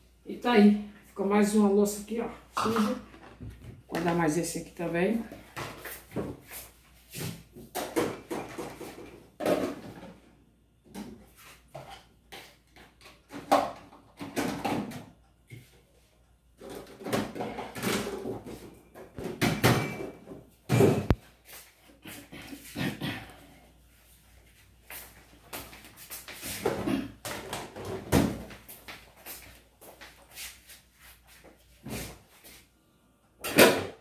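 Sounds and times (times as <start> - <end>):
dishes and pots clattering: 19.1 - 21.2.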